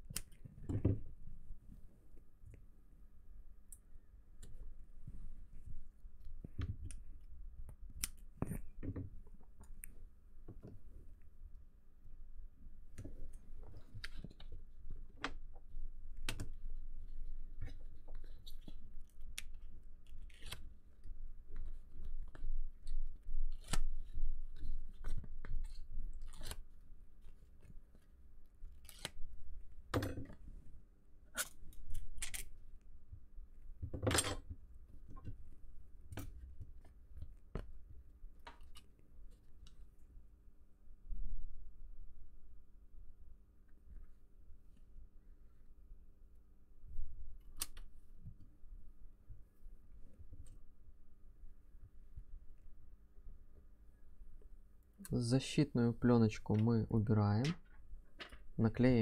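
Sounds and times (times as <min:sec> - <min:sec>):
tape peeling: 0:17.6 - 0:28.0, 0:28.6 - 0:29.4, 0:31.3 - 0:32.6.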